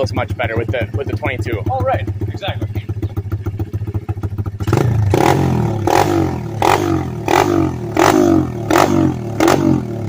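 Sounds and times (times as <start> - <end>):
motorbike engine revving: 0.0 - 10.0.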